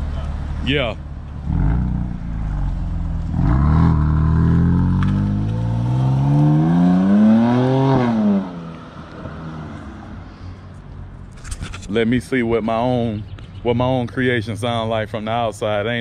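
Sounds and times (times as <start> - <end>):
car engine accelerating hard: 1.4 - 10.0.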